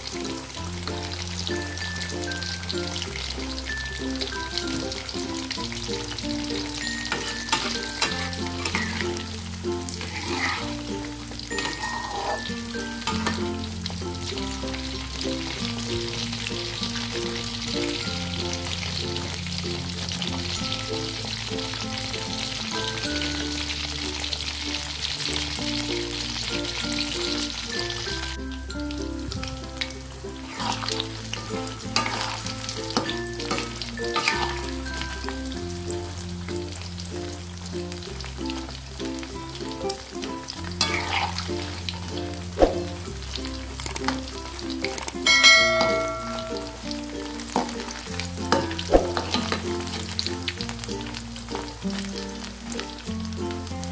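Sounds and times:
quiet background music: 0.0 - 53.9
shrimp sizzling in hot oil: 0.0 - 53.9
spatula scraping a pan: 7.1 - 9.2, 9.9 - 10.8, 11.5 - 12.5, 30.4 - 34.8, 40.8 - 41.8.

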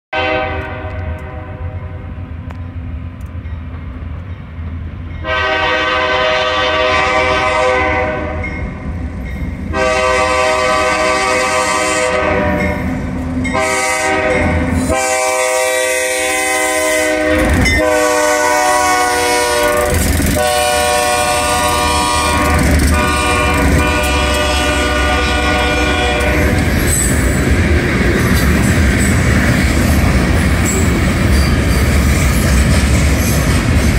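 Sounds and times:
locomotive air horn blasts: 0.1 - 2.2, 5.2 - 8.5, 9.7 - 26.8
diesel locomotive engine running: 0.2 - 33.9
train wheels clattering on rails: 17.2 - 33.9.

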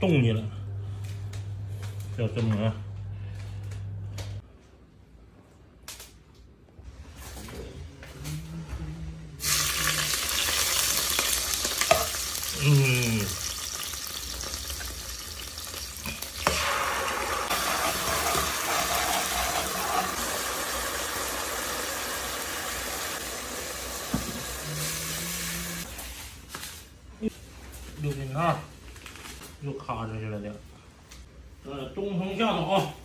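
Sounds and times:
hot oil sizzling in a pot: 9.4 - 25.9.

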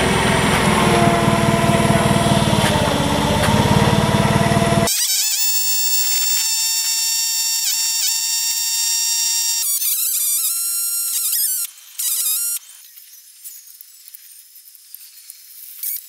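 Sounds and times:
engine running: 0.0 - 4.9
high-pitched whine: 0.0 - 9.6.

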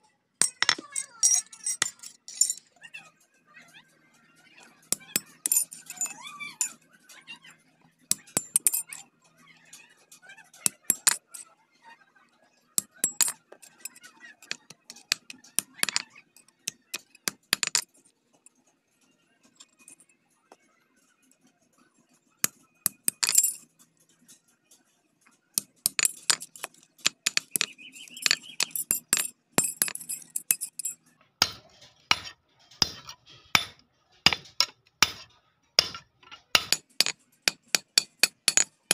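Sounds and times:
hammer clinking on steel anvil: 0.4 - 2.6, 4.9 - 6.8, 25.6 - 38.9.

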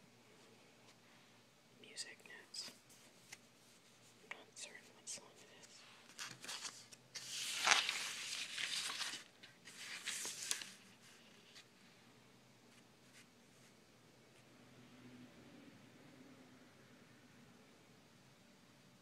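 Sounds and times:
paper rustling and sliding: 5.6 - 11.8.

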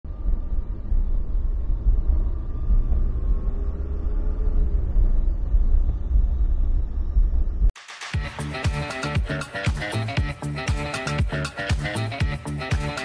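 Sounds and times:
drivetrain and road rumble: 0.0 - 7.8.

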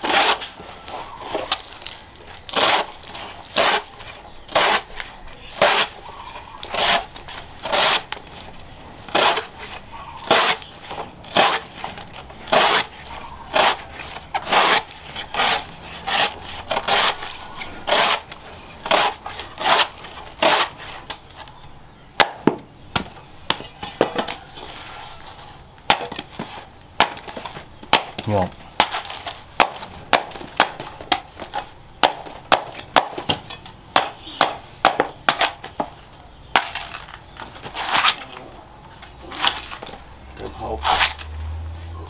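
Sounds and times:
cleaver slicing against wooden block: 5.6 - 6.0, 6.6 - 8.1, 9.1 - 10.7, 12.5 - 17.3, 17.9 - 21.2
sharp knocks: 25.9 - 36.0.

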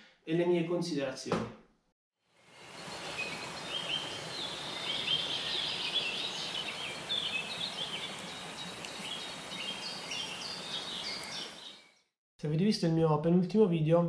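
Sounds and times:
outdoor background hiss: 2.3 - 11.8
birds chirping: 2.4 - 12.1.

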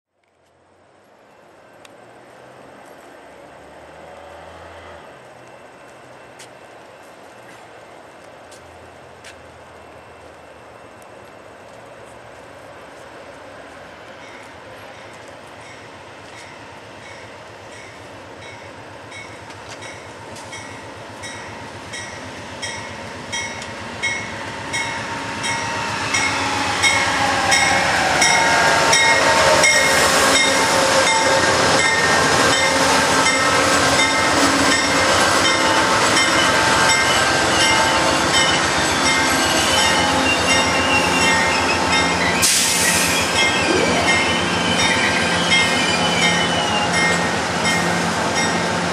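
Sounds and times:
wheel and rail noise: 0.2 - 48.9
diesel locomotive pulling train: 0.7 - 48.9
locomotive bell ringing: 14.2 - 42.5, 43.3 - 48.6
falling whine: 38.6 - 47.2.

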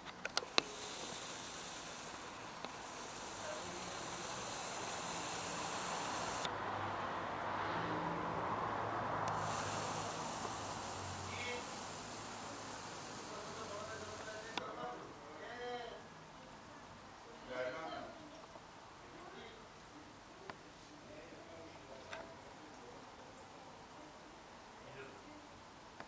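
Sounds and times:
camera lens zoom motor whirring: 0.0 - 6.5, 9.3 - 14.6
sharp clicks: 0.0 - 6.5, 9.2 - 14.6.

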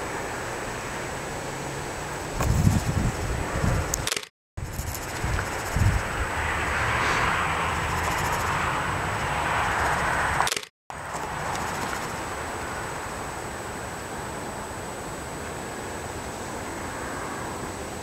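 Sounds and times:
low rumble: 5.9 - 9.4.

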